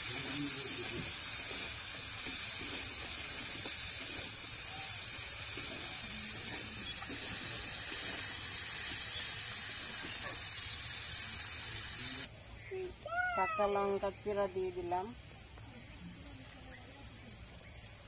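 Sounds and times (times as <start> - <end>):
potatoes sizzling in hot oil: 0.0 - 12.3.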